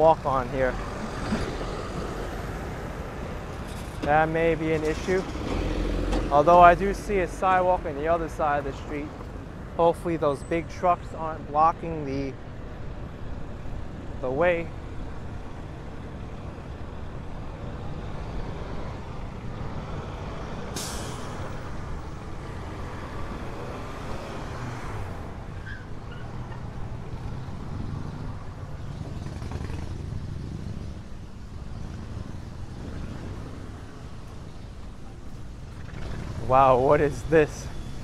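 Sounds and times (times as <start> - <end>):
diesel truck engines running: 0.0 - 12.3, 12.9 - 38.0
truck air brakes hissing: 20.7 - 21.6.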